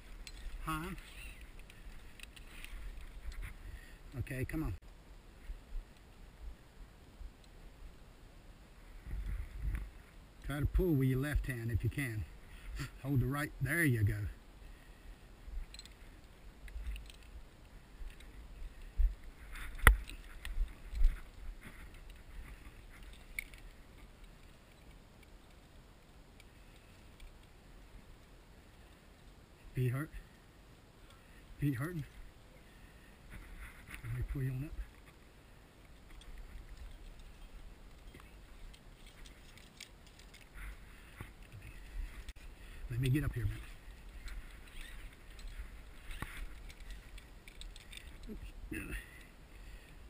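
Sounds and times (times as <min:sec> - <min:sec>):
rope scrapes and ticks: 0:00.0 - 0:03.9, 0:18.0 - 0:25.7, 0:33.3 - 0:35.2, 0:35.8 - 0:49.2
metal hardware clicks and jingles: 0:00.1 - 0:03.0, 0:15.7 - 0:16.0, 0:16.8 - 0:17.3
wind on microphone: 0:08.9 - 0:10.0
rope pulled through belay device: 0:36.0 - 0:42.5, 0:43.6 - 0:48.4.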